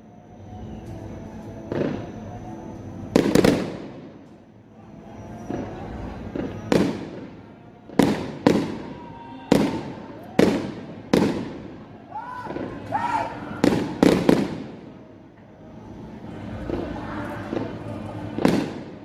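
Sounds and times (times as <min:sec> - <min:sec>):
fireworks bangs echoing: 0:01.7 - 0:02.2, 0:03.1 - 0:04.2, 0:05.4 - 0:11.8, 0:12.4 - 0:12.9, 0:13.6 - 0:14.9, 0:16.6 - 0:19.0.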